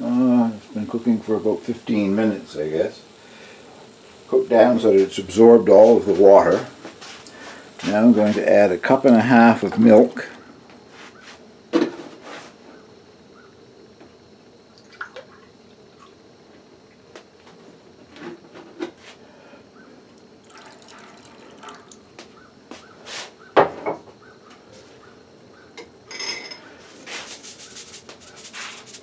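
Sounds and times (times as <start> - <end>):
milk pouring and splashing: 14.8 - 16.2, 20.4 - 22.1.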